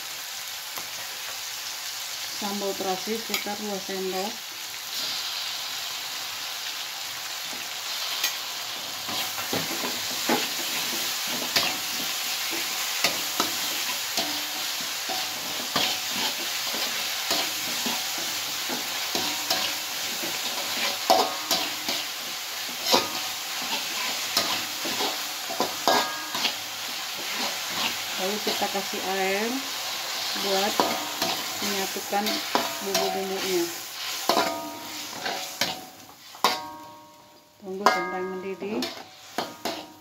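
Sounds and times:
spices sizzling in oil: 0:00.0 - 0:40.0
metal spatula scraping wok: 0:07.9 - 0:37.1, 0:37.8 - 0:40.0.

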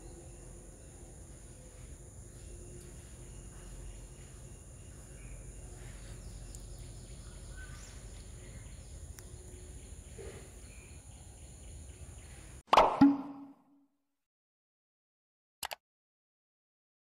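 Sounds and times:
high insect drone: 0:00.0 - 0:12.0
faint bird chirps: 0:00.0 - 0:12.6
steady background hum: 0:00.0 - 0:12.6.

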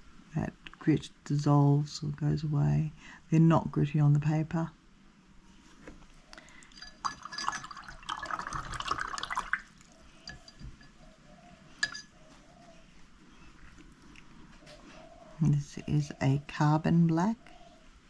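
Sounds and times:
light clinks: 0:06.4 - 0:08.0, 0:10.0 - 0:11.1, 0:11.8 - 0:12.3.

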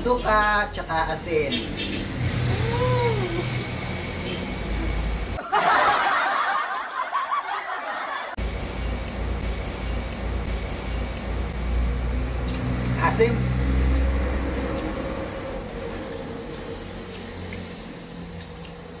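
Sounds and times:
steady low hum: 0:08.4 - 0:19.0.

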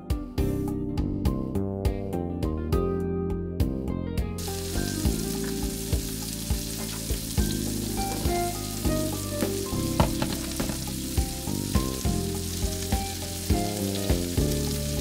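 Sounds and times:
mushrooms sizzling in skillet: 0:04.4 - 0:15.0.

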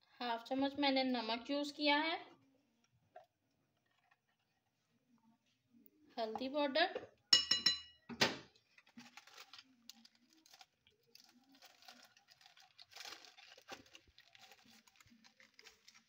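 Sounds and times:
rustling of kitchen items: 0:00.6 - 0:05.6, 0:06.2 - 0:16.0
metal spoon clinking glass bowl: 0:07.4 - 0:08.0.

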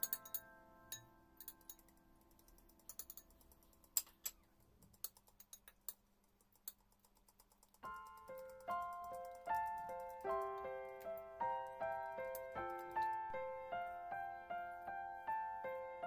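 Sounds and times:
background music chord: 0:08.3 - 0:16.0.

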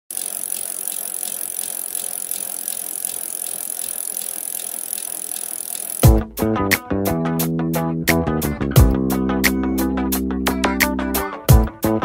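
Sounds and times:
mechanical whirring with ticking: 0:00.0 - 0:06.1
plucked guitar and bass music: 0:06.0 - 0:12.0.

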